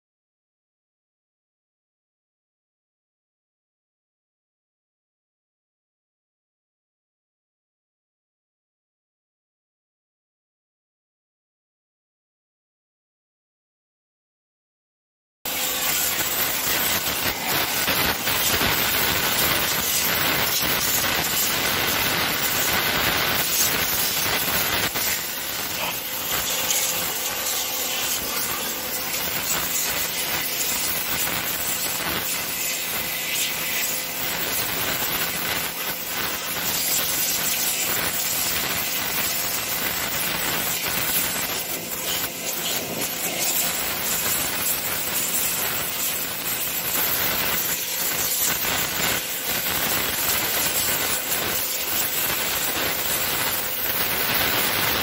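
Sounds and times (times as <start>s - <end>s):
pressure washer spraying metal: 15.5s - 55.0s.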